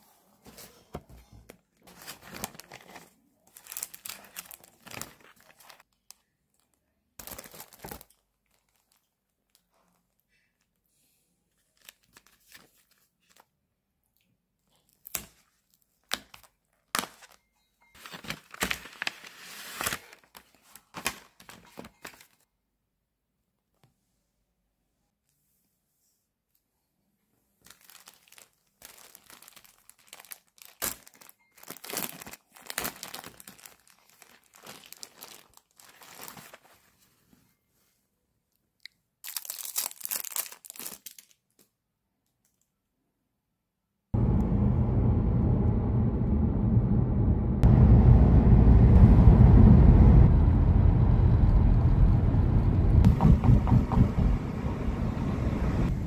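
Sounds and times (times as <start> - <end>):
plastic packaging crinkling: 1.8 - 10.0, 11.7 - 13.5, 18.0 - 22.4, 27.6 - 37.0, 39.2 - 41.6
car driving road noise: 44.2 - 56.0.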